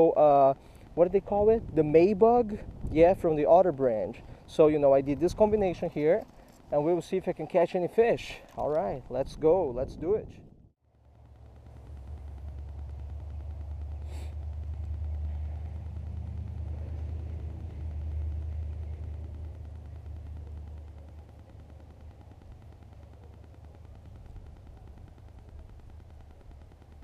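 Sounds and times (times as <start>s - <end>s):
wind buffeting microphone: 0.8s - 6.0s, 8.8s - 10.7s.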